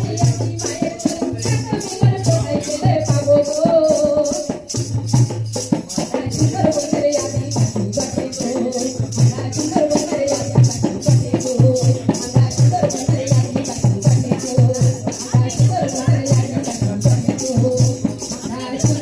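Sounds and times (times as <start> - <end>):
fast shaker rhythm: 0.0 - 19.0.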